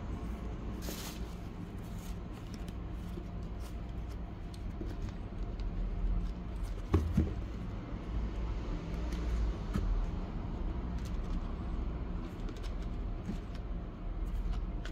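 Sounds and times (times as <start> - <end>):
cardboard box being handled: 0.7 - 7.8, 12.2 - 14.9.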